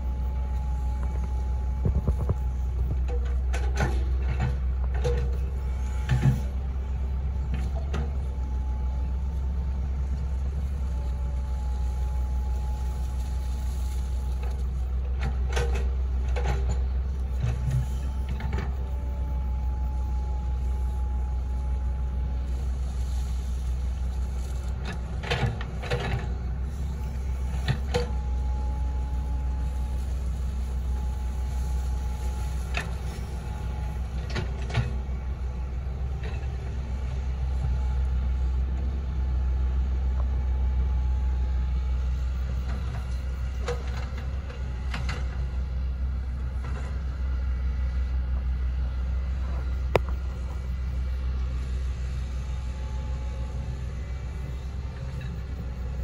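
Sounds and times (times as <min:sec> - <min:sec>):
hydraulic whine: 0:00.0 - 0:38.5
excavator diesel engine running: 0:00.0 - 0:56.0.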